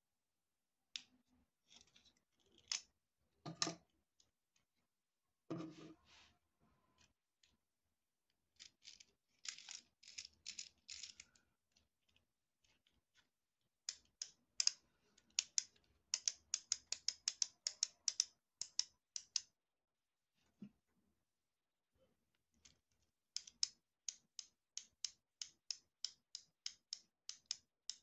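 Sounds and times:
plastic toy clicks: 8.6 - 11.4, 13.9 - 19.5, 22.6 - 28.0.

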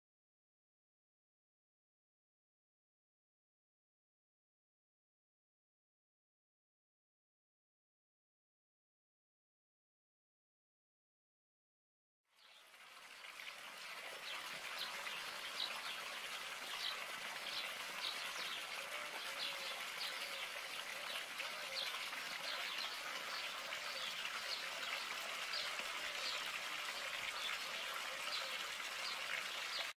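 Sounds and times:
flowing water: 12.3 - 29.9.

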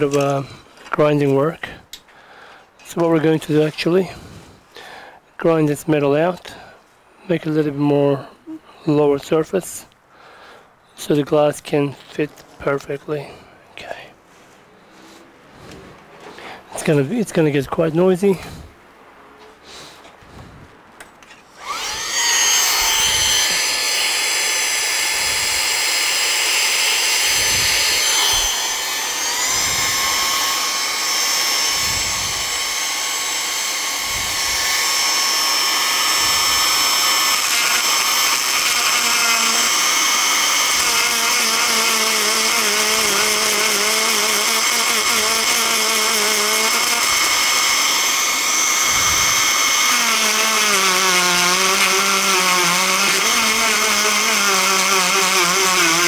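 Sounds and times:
electric grinder whining: 21.3 - 56.0.

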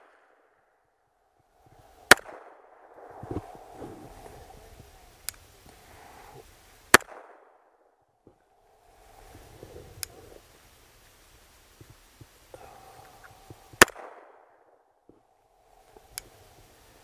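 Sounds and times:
faint sharp crack: 2.0 - 5.5, 6.9 - 7.7, 11.8 - 15.2
pistol shots: 2.1 - 2.9, 6.9 - 7.5, 13.8 - 14.4.

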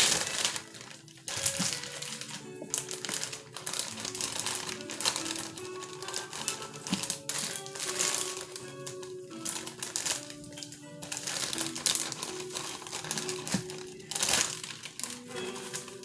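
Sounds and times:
background music with held notes: 0.0 - 16.0
plastic bag crinkling: 0.0 - 16.0.

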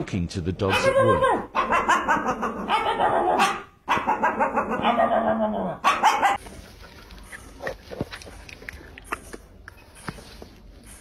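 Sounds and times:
small dog barking and whining: 0.7 - 6.4.

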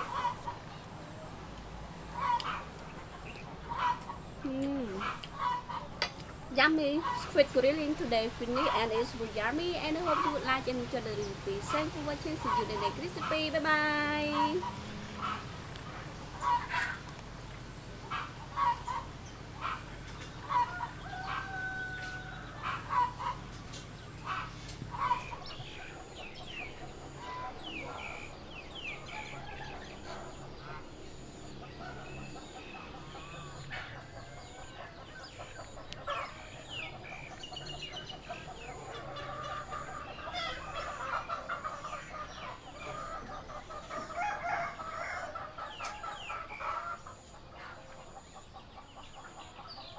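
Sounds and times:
chickens clucking: 0.0 - 49.9
small birds chirping: 0.0 - 49.9
rooster crowing: 20.4 - 23.4, 26.4 - 30.9, 38.6 - 47.1.

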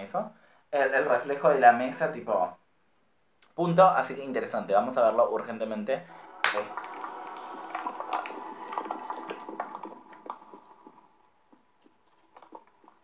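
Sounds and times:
faint hum: 5.5 - 13.0
crackling dripping liquid clicks: 6.2 - 13.0.

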